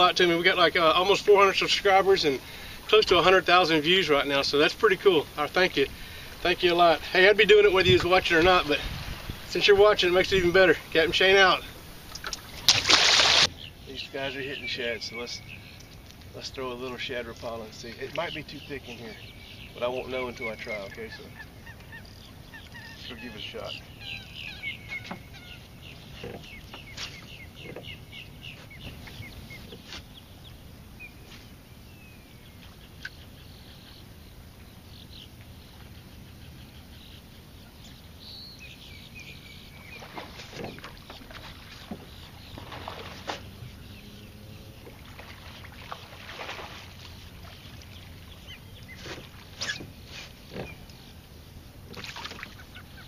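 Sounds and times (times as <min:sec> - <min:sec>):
bird calls: 0:00.0 - 0:53.0
fish splashing at the surface: 0:12.1 - 0:13.5, 0:39.9 - 0:43.6, 0:44.8 - 0:48.4, 0:51.9 - 0:52.6.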